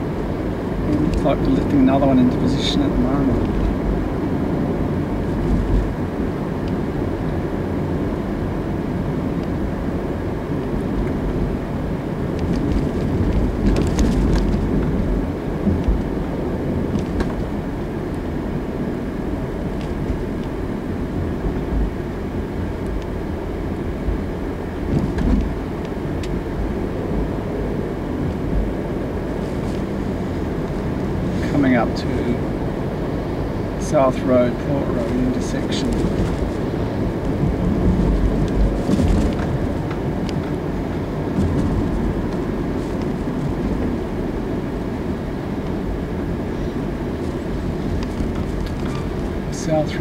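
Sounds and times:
car tyre and engine noise: 0:00.0 - 0:50.0.

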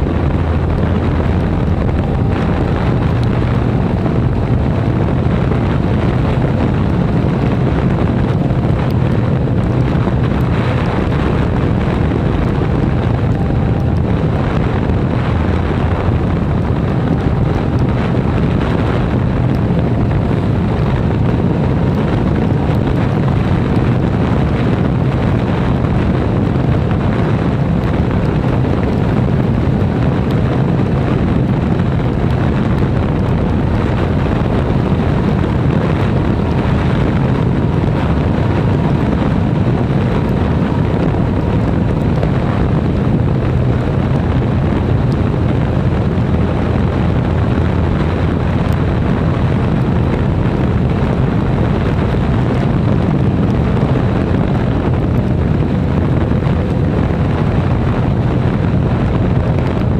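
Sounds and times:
motorcycle engine: 0:00.0 - 0:59.9
tyres on wet tarmac: 0:00.0 - 0:59.9
wind rush on microphone: 0:00.0 - 0:59.9.

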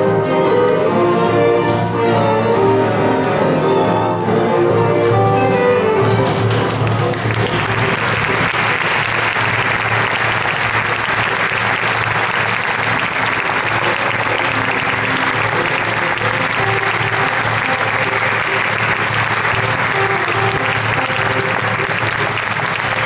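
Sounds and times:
orchestra music: 0:00.0 - 0:23.0
audience applauding: 0:06.2 - 0:23.0.

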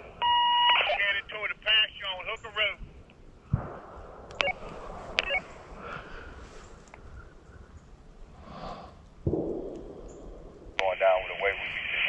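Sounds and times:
faint radio hiss: 0:00.0 - 0:07.3, 0:10.7 - 0:12.0
radio click: 0:04.3 - 0:05.4, 0:10.8 - 0:12.0.

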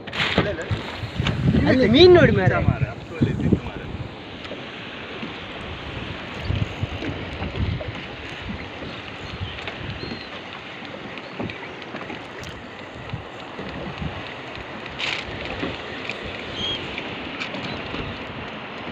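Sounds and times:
sea water washing around boat: 0:00.0 - 0:18.9
wind buffeting microphone: 0:00.0 - 0:18.9
low gusty thumps: 0:00.1 - 0:10.0.

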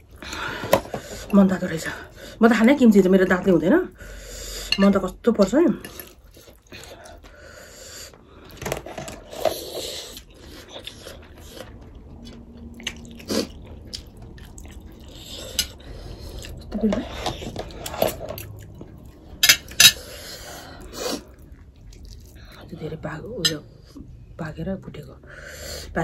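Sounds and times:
chewing and slurping: 0:08.4 - 0:22.7.

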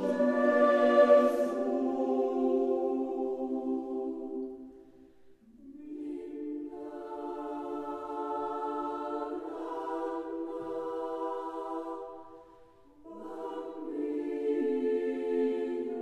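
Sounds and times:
choir singing sustained chords: 0:00.0 - 0:16.0.

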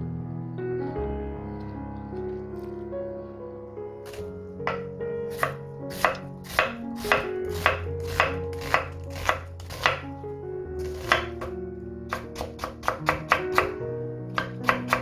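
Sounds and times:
soft background music: 0:00.0 - 0:15.0
knife chopping on wooden board: 0:04.1 - 0:10.0, 0:10.9 - 0:11.5, 0:12.1 - 0:13.8, 0:14.4 - 0:15.0.

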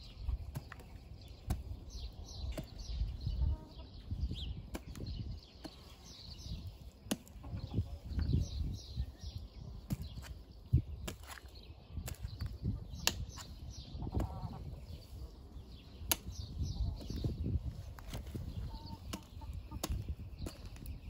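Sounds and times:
birds chirping: 0:00.0 - 0:21.0
hand hoe striking soil: 0:00.4 - 0:01.8, 0:07.0 - 0:07.4, 0:11.0 - 0:13.5, 0:16.0 - 0:16.4, 0:19.0 - 0:20.9
dirt scraping: 0:09.8 - 0:21.0.

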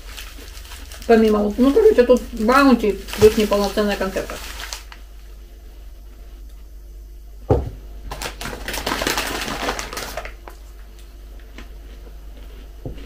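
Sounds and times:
plastic packaging crinkling: 0:00.0 - 0:05.1, 0:08.1 - 0:11.0.

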